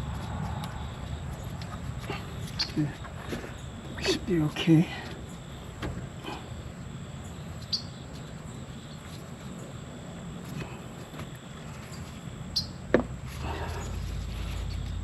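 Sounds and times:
faint clicks and rustles: 0:00.0 - 0:06.7
outdoor background noise: 0:00.0 - 0:15.0.

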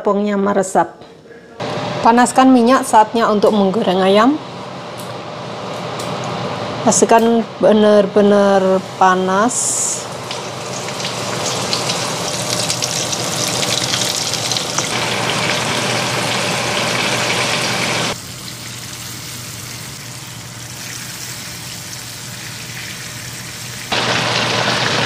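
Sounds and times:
chicken deep-frying in oil: 0:09.5 - 0:25.0.

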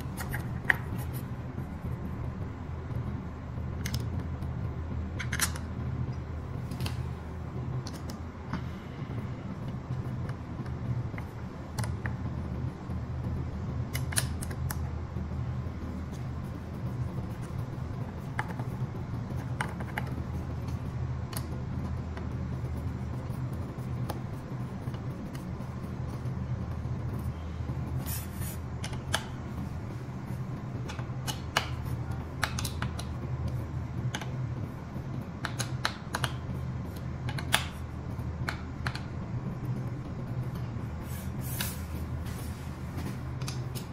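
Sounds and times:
low hum: 0:00.0 - 0:43.9.

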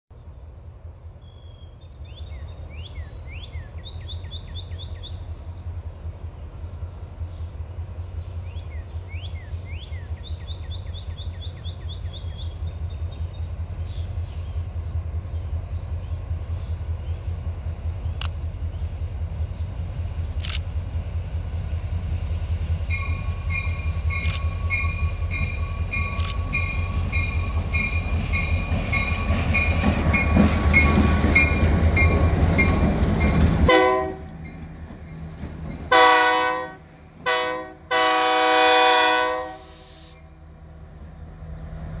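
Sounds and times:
locomotive engine rumble: 0:00.2 - 0:42.0
locomotive bell ringing: 0:22.9 - 0:33.5
locomotive horn blasts: 0:33.7 - 0:34.3, 0:35.9 - 0:40.2.

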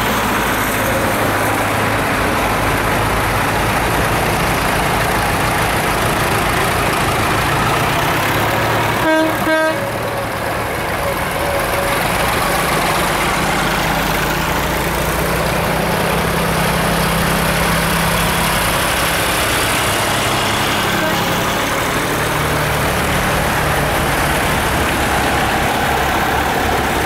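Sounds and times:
tractor engines driving past: 0:00.0 - 0:27.0
horn toots: 0:08.9 - 0:10.2, 0:20.7 - 0:21.7.

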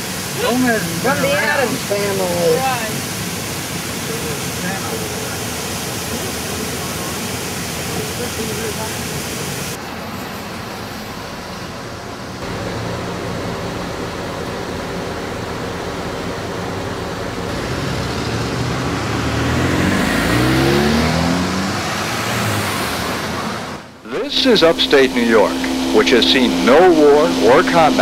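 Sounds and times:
road traffic noise: 0:00.0 - 0:28.0
car accelerating past: 0:17.4 - 0:24.0.

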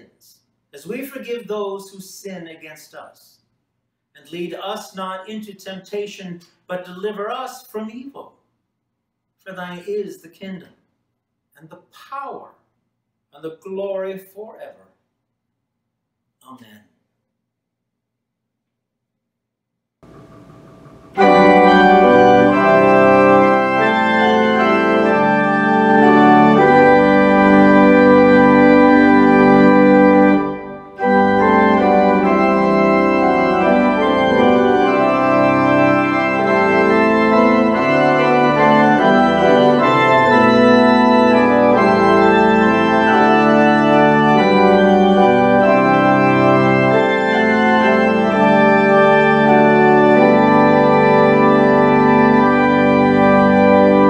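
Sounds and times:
church organ playing a hymn: 0:20.0 - 0:54.0.

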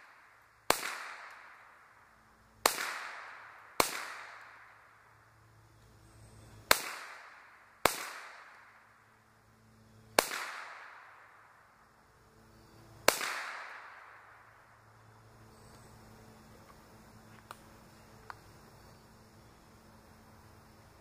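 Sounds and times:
rifle shots with echo: 0:00.0 - 0:01.8, 0:02.6 - 0:05.0, 0:06.7 - 0:08.9, 0:10.2 - 0:11.5, 0:13.0 - 0:14.5.

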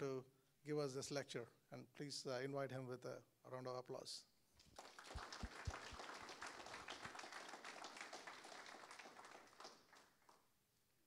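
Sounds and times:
audience applauding: 0:04.6 - 0:10.4.

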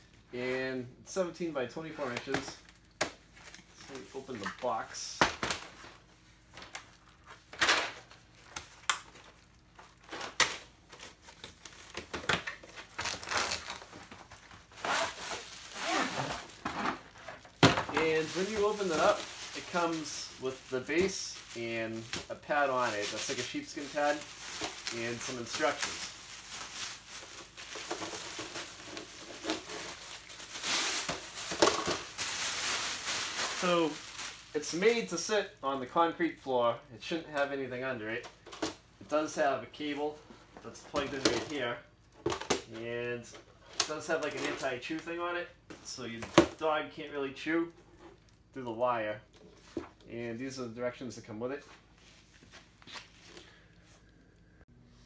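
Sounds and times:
plastic wrapping crinkling: 0:05.5 - 0:35.1
cardboard scraping and rustling: 0:12.7 - 0:32.0.

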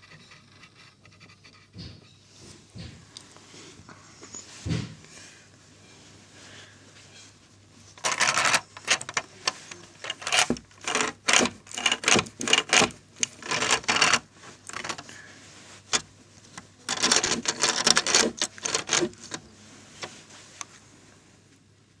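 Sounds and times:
plastic bricks clicking and clattering: 0:08.0 - 0:09.3, 0:10.0 - 0:15.1, 0:16.9 - 0:19.4.

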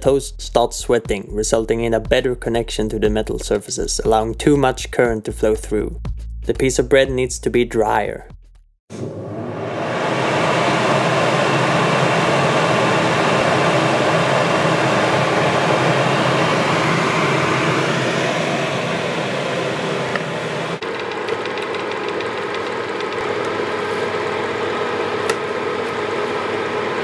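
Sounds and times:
fan heater blowing air: 0:08.9 - 0:27.0.

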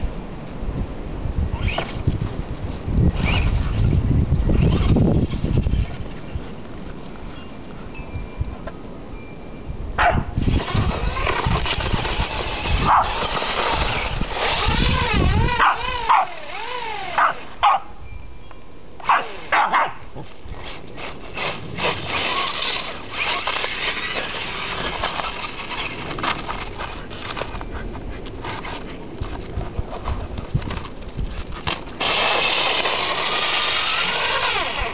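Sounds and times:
toy truck electric motor whining: 0:03.2 - 0:03.7, 0:04.5 - 0:06.0, 0:10.4 - 0:17.6, 0:20.6 - 0:27.6, 0:32.0 - 0:34.9
small dog barking: 0:10.0 - 0:10.3, 0:15.6 - 0:16.3, 0:17.2 - 0:18.0, 0:19.1 - 0:20.1
tyres churning through snow: 0:10.4 - 0:17.4, 0:20.5 - 0:30.4, 0:31.9 - 0:34.9.

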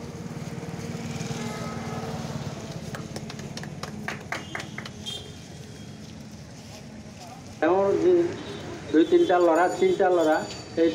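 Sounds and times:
people clapping: 0:02.5 - 0:05.3.

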